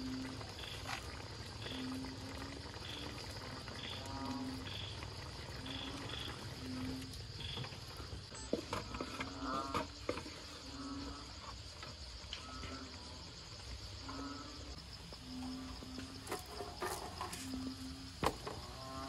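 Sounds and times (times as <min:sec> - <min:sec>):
insects chirring: 0:00.0 - 0:19.0.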